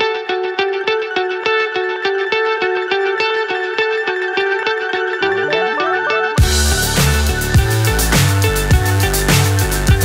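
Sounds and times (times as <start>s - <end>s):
electronic music with heavy bass: 4.2s - 10.0s.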